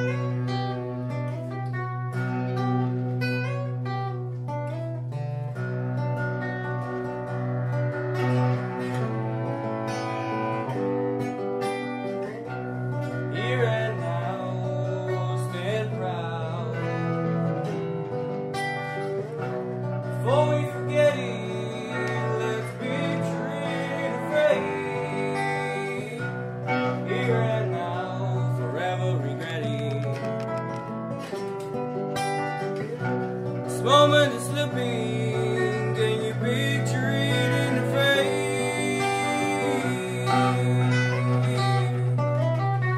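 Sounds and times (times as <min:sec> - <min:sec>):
plucked acoustic guitar: 0:00.0 - 0:42.9
person singing: 0:13.0 - 0:17.8, 0:20.0 - 0:31.0, 0:32.9 - 0:42.9.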